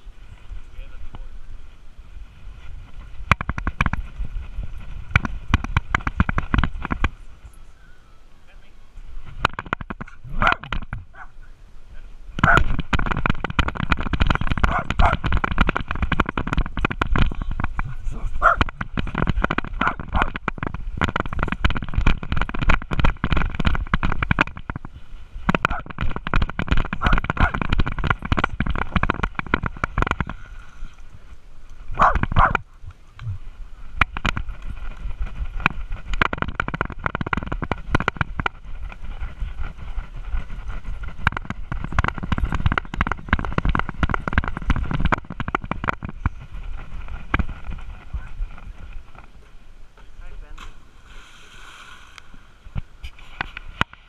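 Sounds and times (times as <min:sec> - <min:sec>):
camera rubbing and knocking: 0:02.1 - 0:07.6, 0:09.1 - 0:11.3, 0:12.4 - 0:49.6, 0:50.5 - 0:54.0.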